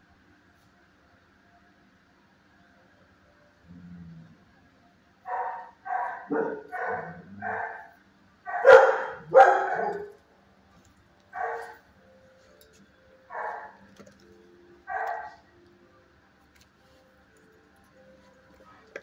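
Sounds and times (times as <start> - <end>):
dog barking: 5.3 - 10.2, 11.3 - 11.8, 13.3 - 13.8, 14.9 - 15.4.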